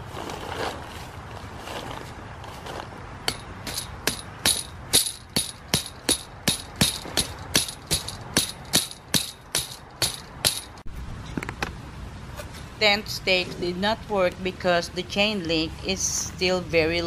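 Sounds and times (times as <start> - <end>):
hammer striking metal stake: 3.3 - 10.8.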